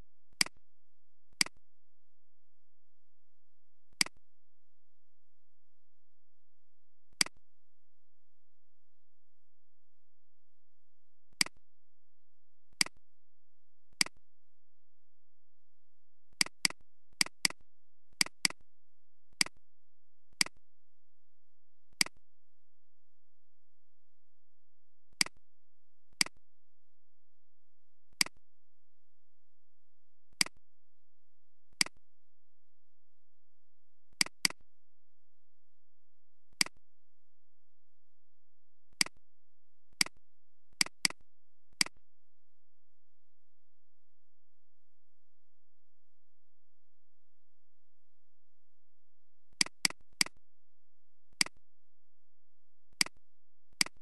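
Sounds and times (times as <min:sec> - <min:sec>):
computer mouse clicks: 0:03.9 - 0:04.2, 0:07.1 - 0:07.4, 0:16.4 - 0:17.6, 0:18.2 - 0:18.6, 0:20.4 - 0:20.6, 0:21.9 - 0:22.2, 0:28.1 - 0:28.4, 0:31.8 - 0:32.0, 0:34.2 - 0:34.6, 0:36.5 - 0:36.8, 0:40.8 - 0:42.0, 0:49.5 - 0:50.4, 0:51.4 - 0:51.6, 0:52.9 - 0:53.2, 0:53.8 - 0:54.0
mouse button clicking: 0:53.8 - 0:54.0.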